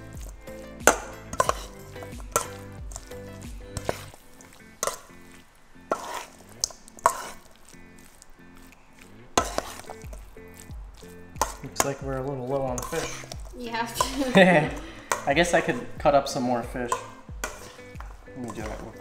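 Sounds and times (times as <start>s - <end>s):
background music: 0.0s - 19.0s
metal spoon clinking in bowl: 0.9s - 2.6s, 16.9s - 17.7s.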